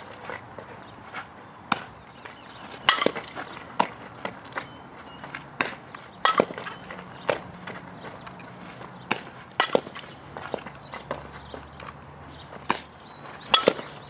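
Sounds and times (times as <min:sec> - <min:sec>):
ball hit by bat: 0:02.9 - 0:03.9, 0:05.6 - 0:07.4, 0:09.1 - 0:10.1, 0:13.5 - 0:14.0.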